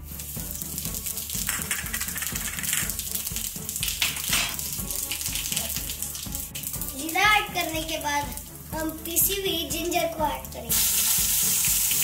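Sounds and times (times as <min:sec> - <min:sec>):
seeds sizzling in hot oil: 0:00.0 - 0:06.8, 0:10.7 - 0:12.0
background music with low beat: 0:00.0 - 0:12.0.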